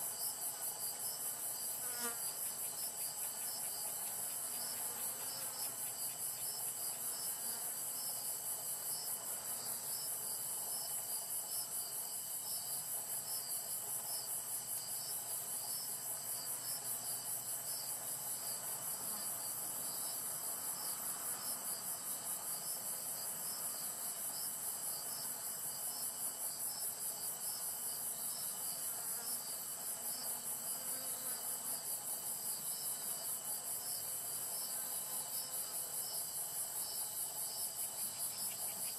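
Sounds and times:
insect chirping: 0.0s - 38.9s
insect pulsing trill: 30.9s - 38.9s.

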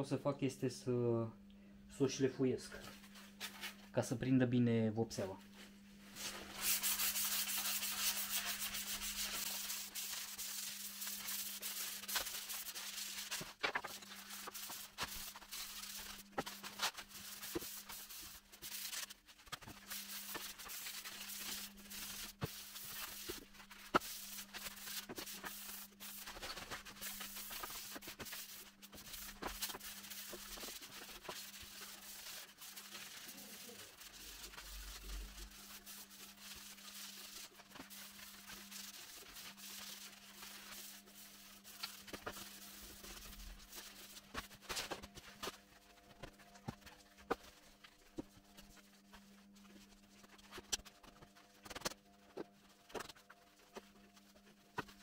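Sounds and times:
hand sanding wood: 6.2s - 44.6s.

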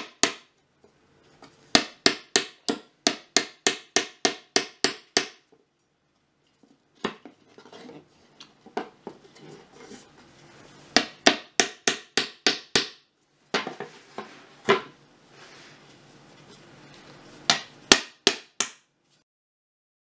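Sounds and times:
hammer driving nail into wood: 11.0s - 13.0s.

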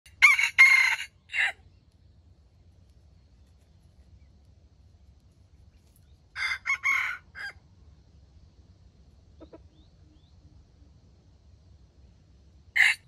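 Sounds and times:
rooster crowing: 0.1s - 1.6s, 6.3s - 7.6s, 12.8s - 13.0s.

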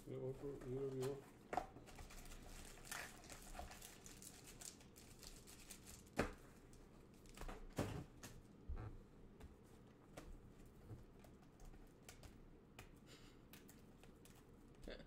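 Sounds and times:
soft crinkling: 0.1s - 7.4s.

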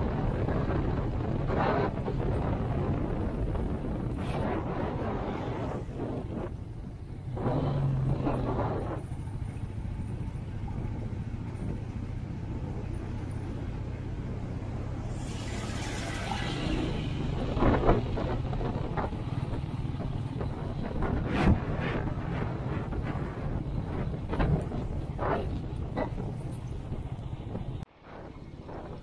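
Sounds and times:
motorcycle engine running: 0.0s - 27.8s
wind and road noise: 0.0s - 29.0s.

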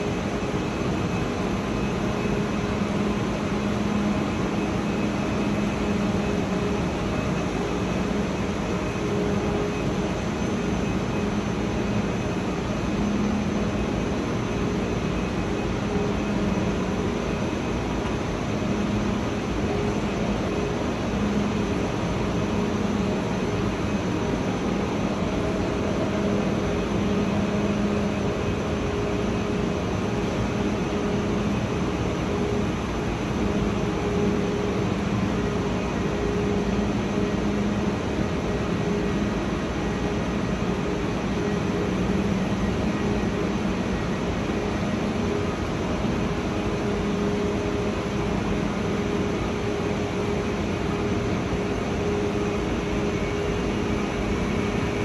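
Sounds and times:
train ventilation fan hum: 0.0s - 55.0s.

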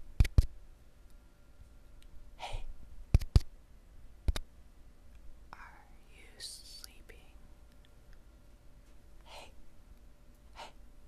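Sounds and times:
sharp clicks: 3.1s - 3.5s.

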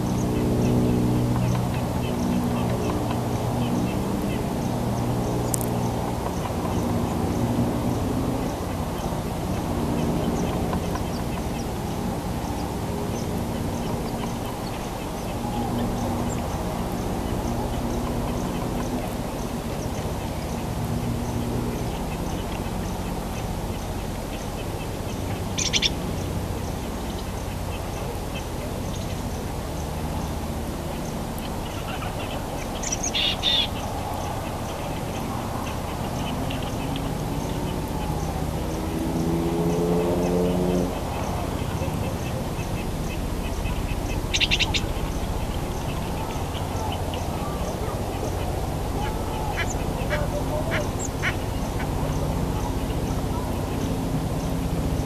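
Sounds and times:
woodpecker calling: 0.0s - 40.0s, 40.6s - 54.6s
steady low rumble: 40.6s - 55.0s.

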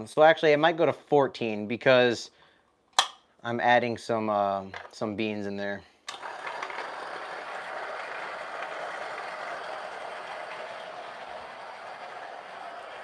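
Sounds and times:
coffee grinder grinding whir: 6.1s - 13.0s.

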